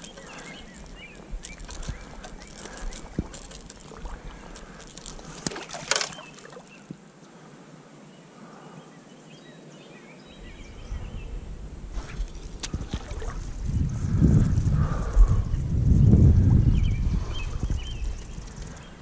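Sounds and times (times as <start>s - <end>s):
wind rumble on microphone: 10.4s - 19.0s.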